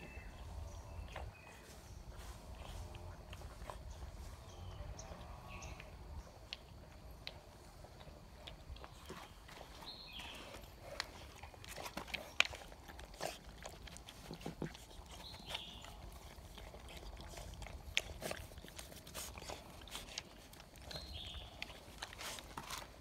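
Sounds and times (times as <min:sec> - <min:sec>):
puppies crunching kibble: 0:00.0 - 0:23.0
puppies snuffling: 0:00.0 - 0:23.0.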